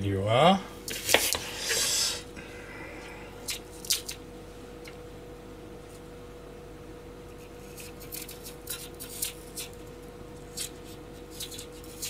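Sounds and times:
steady low hum: 0.0 - 12.0
knife cutting apple: 7.3 - 9.8, 10.4 - 12.0.

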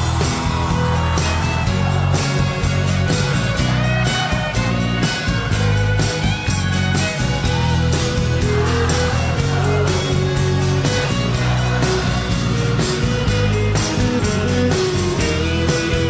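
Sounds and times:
rock band playing: 0.0 - 16.0.

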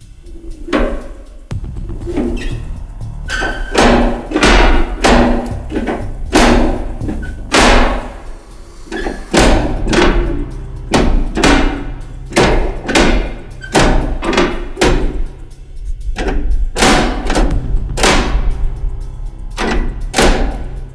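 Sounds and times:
heavy metal parts clanking: 0.0 - 20.9.

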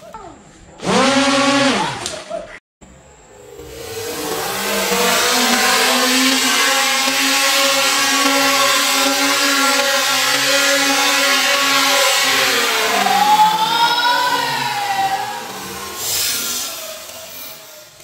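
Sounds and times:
electric motors spinning propellers: 0.8 - 2.1, 2.9 - 18.0
hiss of rushing air: 15.6 - 17.9.

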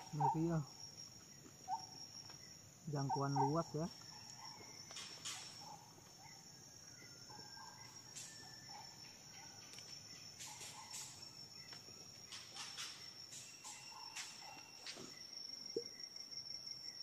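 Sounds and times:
insects droning: 0.0 - 17.0
faint bird-like chirps: 3.0 - 16.1.

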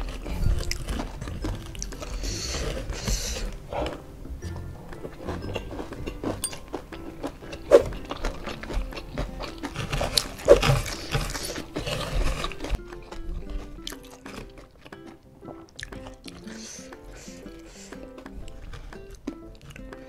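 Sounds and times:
close-up chewing with mouth clicks: 0.0 - 20.0
soft background music: 0.0 - 20.0.

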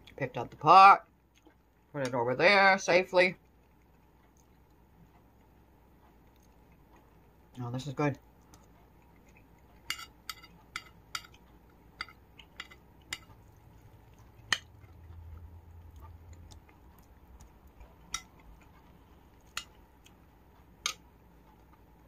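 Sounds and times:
metal spoon clinking against bowl: 9.9 - 11.4, 12.0 - 13.3, 18.1 - 18.4.

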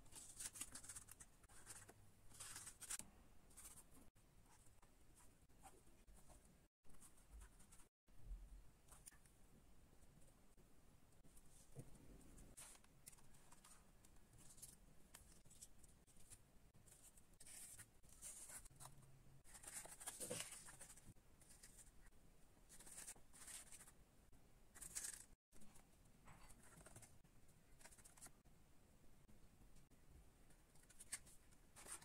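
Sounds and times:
rustling and scraping cardboard: 0.0 - 4.7, 12.5 - 21.9, 24.8 - 28.4, 30.8 - 32.0.

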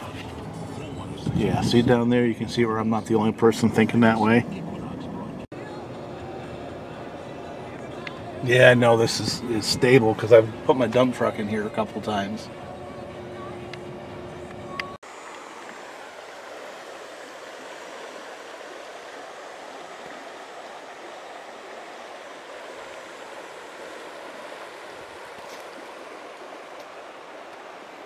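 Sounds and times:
river water flowing over stones: 15.0 - 28.0.

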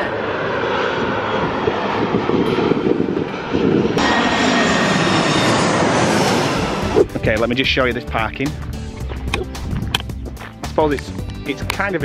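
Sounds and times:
jet airliner engine noise: 0.0 - 9.1.

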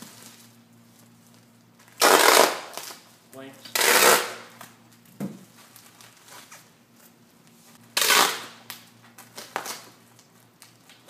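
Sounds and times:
packing tape ripping: 1.8 - 3.0, 3.7 - 4.8, 7.9 - 11.0
tape dispenser clicks: 2.0 - 3.0, 8.0 - 8.8
bubble wrap crinkling: 4.0 - 6.7.

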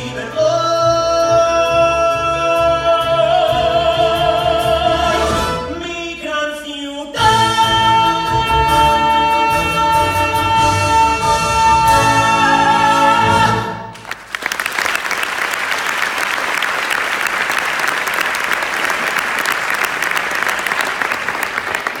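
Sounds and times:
audience applause: 13.9 - 22.0.

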